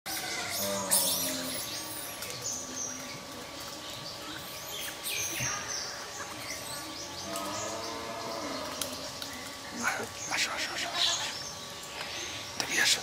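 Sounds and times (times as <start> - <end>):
birds chirping and whistling: 0.1 - 13.0.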